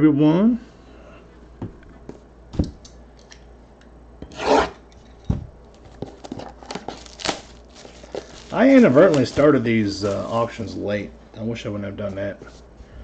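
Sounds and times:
box scraping on box: 4.3 - 4.8
plastic wrap crinkling: 5.7 - 10.7.

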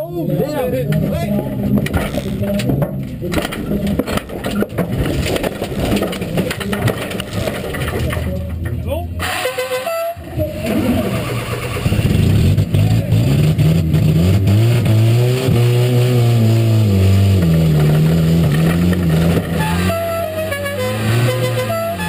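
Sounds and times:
race car engine revving: 9.2 - 22.0.

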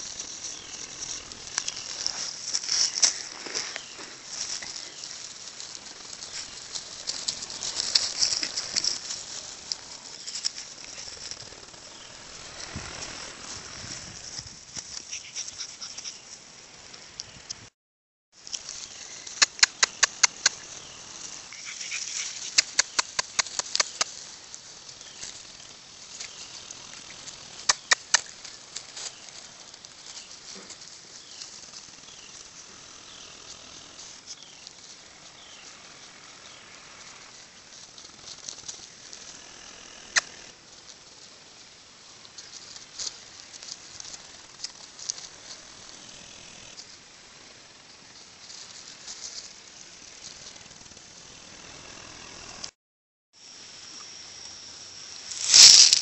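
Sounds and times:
leaves and twigs crackling underfoot: 0.0 - 17.4, 18.4 - 51.1, 55.0 - 56.0
twig snapping: 55.4 - 56.0.

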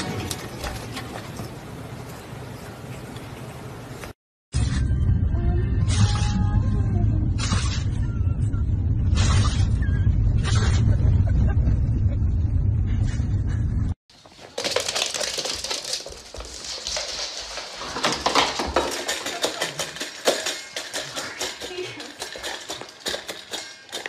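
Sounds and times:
dog claws on laminate floor: 14.2 - 24.0.

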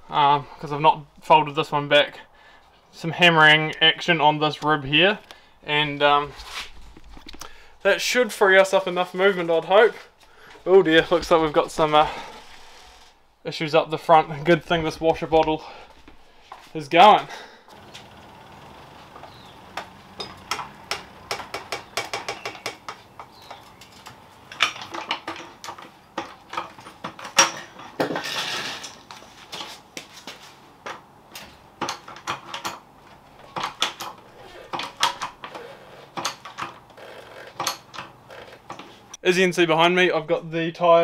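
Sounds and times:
rough rasping noise: 10.8 - 13.2.

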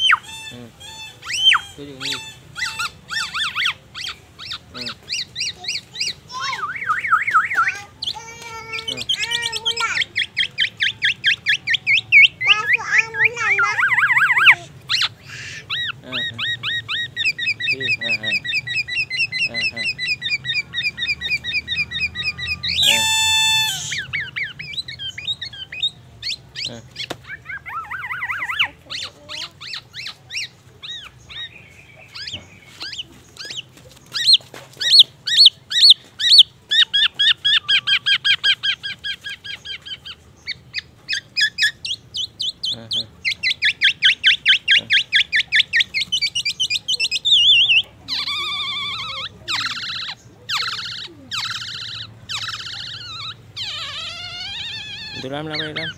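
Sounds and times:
bird singing trills and whistles: 0.0 - 55.9
harsh buzzy bird note: 22.8 - 24.0.

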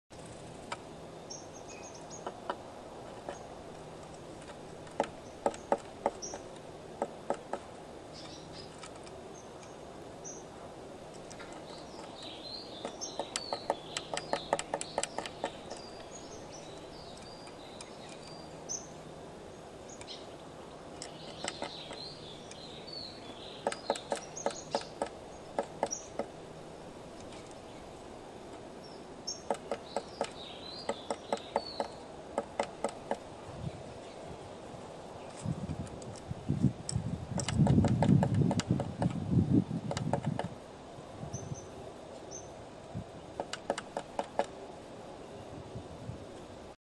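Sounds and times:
bird pecking on wood: 2.2 - 9.2, 11.1 - 16.1, 21.0 - 22.6, 23.6 - 26.4, 29.4 - 33.3, 36.9 - 39.2, 39.8 - 40.6, 43.4 - 44.6
high bird chirps: 11.5 - 19.0, 21.0 - 26.2, 28.9 - 32.0.

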